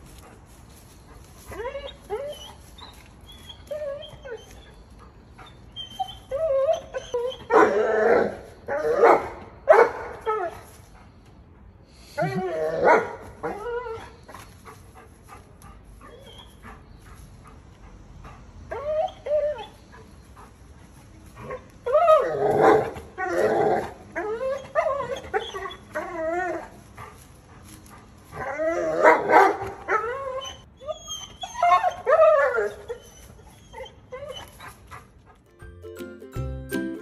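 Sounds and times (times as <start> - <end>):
small dog barking and howling: 28.4 - 34.6
light music: 35.4 - 37.0.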